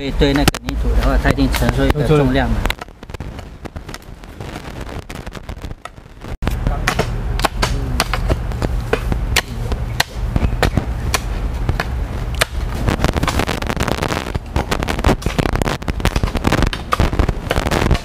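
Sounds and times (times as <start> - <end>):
steady low rumble: 0.0 - 18.0
hoes chopping into soil and stones: 6.5 - 13.6, 14.3 - 18.0.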